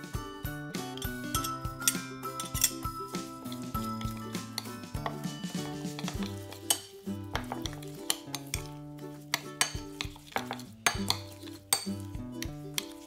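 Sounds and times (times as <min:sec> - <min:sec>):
soft background music: 0:00.0 - 0:13.0
utensils clinking against dishes: 0:00.8 - 0:13.0.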